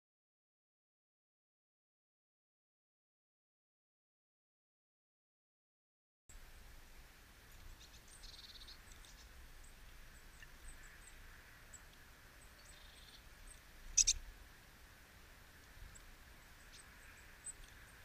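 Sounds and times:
faint outdoor ambience: 6.3s - 18.0s
small birds chirping: 7.4s - 18.0s.

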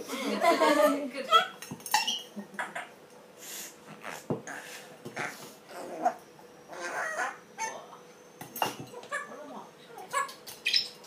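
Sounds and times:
parrot squawking and hissing: 1.3s - 7.8s.

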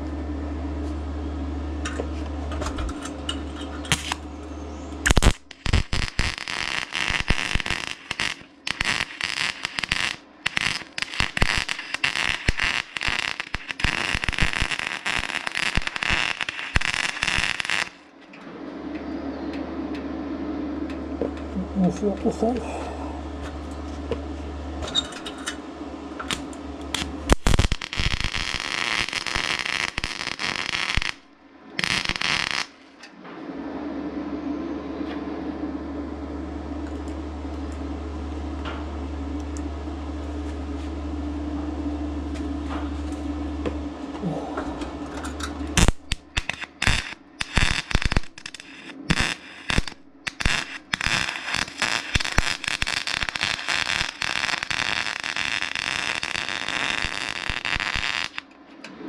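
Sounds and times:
welder humming: 0.0s - 59.0s
welding arc crackling and sizzling: 1.8s - 4.3s, 5.0s - 18.3s, 23.3s - 33.1s, 42.3s - 58.6s.

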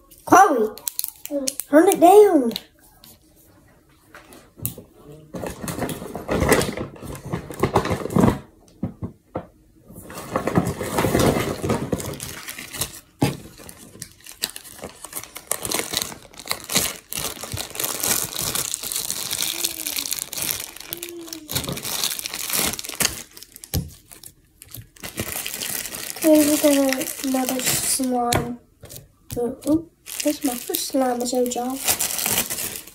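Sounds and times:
slime squishing and crackling: 10.6s - 32.9s.

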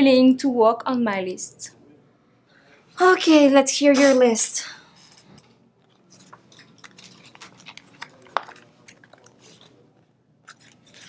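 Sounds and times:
paper rustling: 5.8s - 11.0s.

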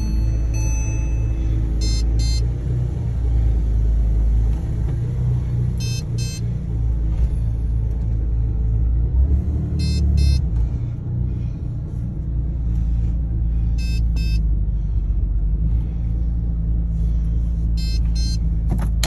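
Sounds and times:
car engine idling: 0.0s - 19.0s
short high electronic beeps: 5.8s - 6.4s, 9.8s - 10.4s.

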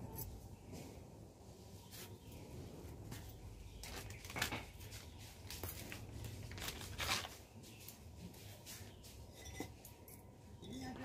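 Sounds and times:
plastic bag rustling: 3.6s - 7.7s.

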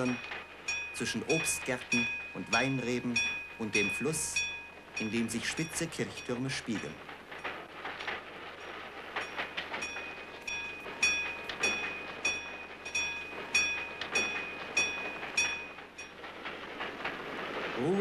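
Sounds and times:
wheels clicking over rail joints: 0.0s - 18.0s
diesel railcar running: 8.9s - 17.8s.

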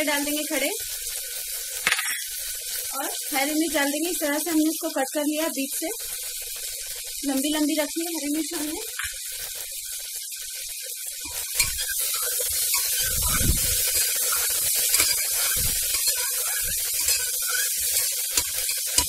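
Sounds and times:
onions sizzling in hot oil: 0.0s - 19.0s
spoon scraping and knocking pot: 1.8s - 2.3s, 14.3s - 19.0s.

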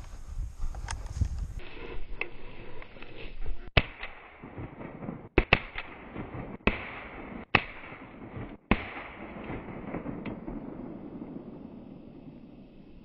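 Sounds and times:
shotgun shots: 3.8s - 12.5s.

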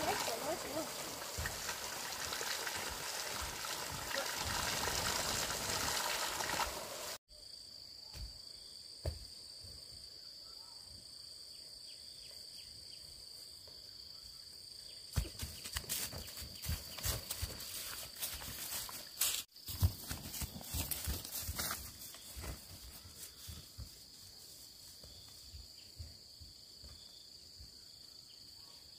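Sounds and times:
running water: 0.0s - 7.2s
footsteps: 15.2s - 26.1s.

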